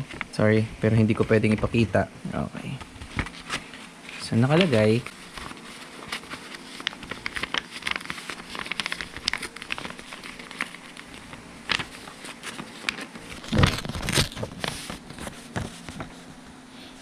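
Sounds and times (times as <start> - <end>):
paper rustling: 0.0 - 1.9, 2.8 - 16.3
paper crackling and tearing: 3.0 - 16.0.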